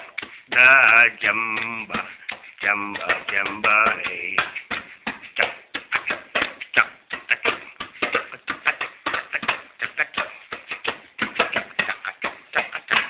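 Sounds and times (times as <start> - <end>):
hand drum slapped rapidly: 2.7 - 13.0.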